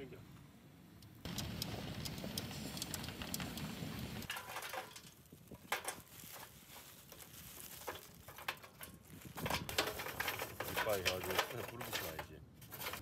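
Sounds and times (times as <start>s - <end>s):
charcoal lumps clinking on metal: 4.2s - 13.0s.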